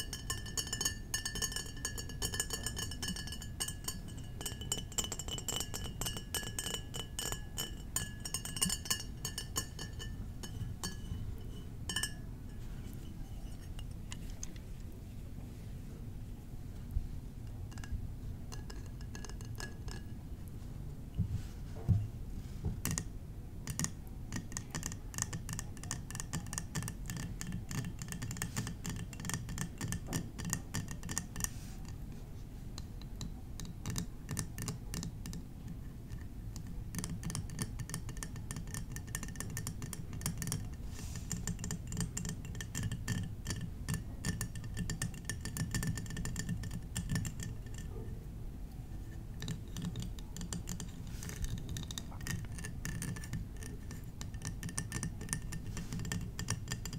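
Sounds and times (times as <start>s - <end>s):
tapping on glass bottles: 0.0s - 14.2s, 17.7s - 20.2s, 36.1s - 48.0s, 49.4s - 56.9s.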